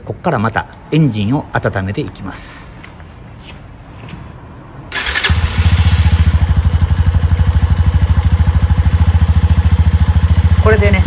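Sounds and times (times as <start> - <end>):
engine starter whirring: 4.9 - 6.2
motorcycle engine idling: 5.0 - 11.0.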